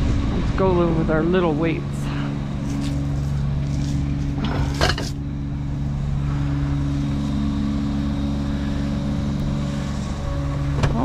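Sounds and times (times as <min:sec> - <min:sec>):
truck engine idling: 0:00.0 - 0:11.0.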